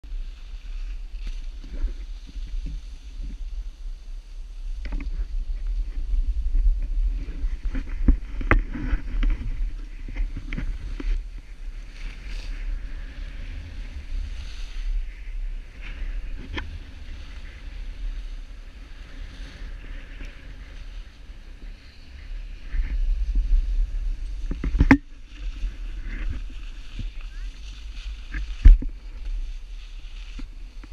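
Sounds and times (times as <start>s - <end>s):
wind rumbling on microphone: 0.0s - 30.9s
skis hissing over snow: 0.1s - 30.9s.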